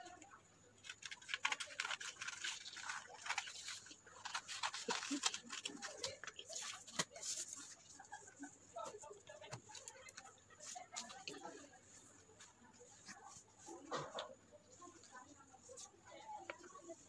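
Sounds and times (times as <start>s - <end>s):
scissors snipping paper: 0.8s - 7.2s
paper rustling and crackling: 0.8s - 17.0s.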